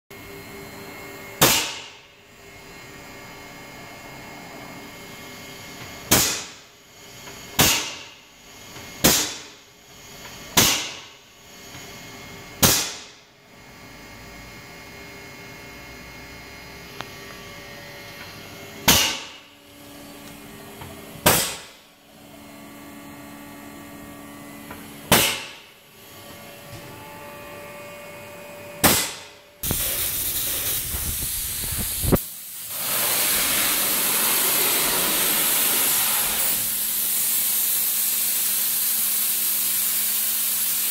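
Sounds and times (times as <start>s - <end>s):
sudden hissing bursts: 29.6s - 38.1s
spray gun loud hiss: 29.6s - 40.9s.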